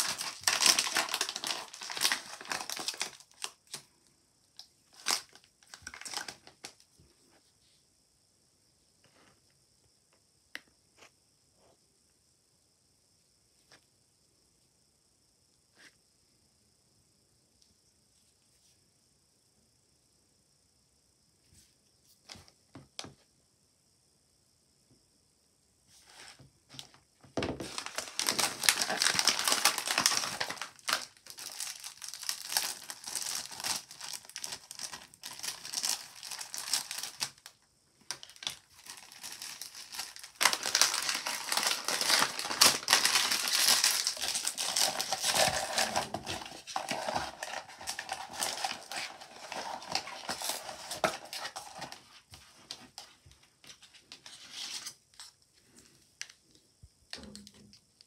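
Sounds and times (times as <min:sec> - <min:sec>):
plastic wrapper crinkling: 0:00.0 - 0:03.9, 0:04.6 - 0:06.8, 0:27.6 - 0:52.0.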